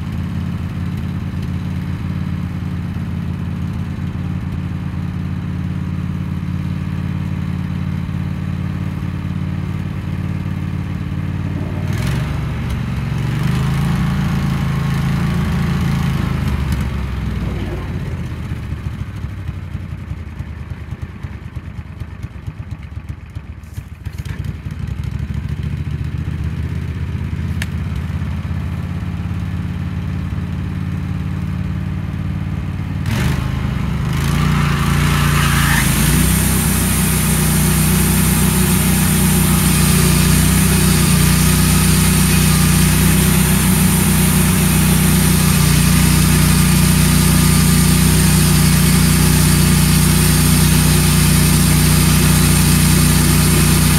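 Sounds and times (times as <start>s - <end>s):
sawmill engine: 0.0s - 21.7s, 28.2s - 53.9s
band blade cutting log hiss: 33.3s - 53.9s.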